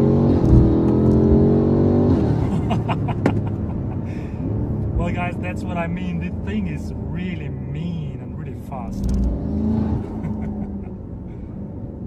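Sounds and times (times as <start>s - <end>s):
car engine revving under load: 0.0s - 7.7s, 8.9s - 12.0s
exhaust cracks: 0.3s - 1.4s.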